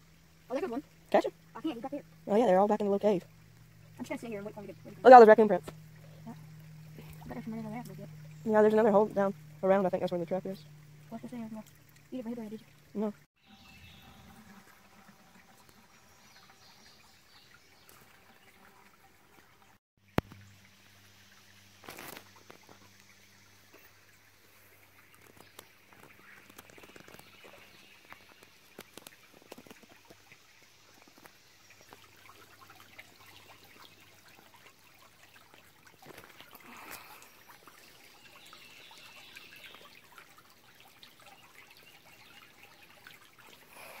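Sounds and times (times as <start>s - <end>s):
creek water trickling over stones: 0.0s - 44.0s
small ticks: 25.1s - 30.4s.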